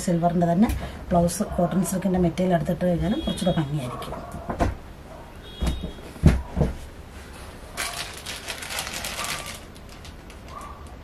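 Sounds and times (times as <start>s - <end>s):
plastic sheet rustling: 7.1s - 11.0s.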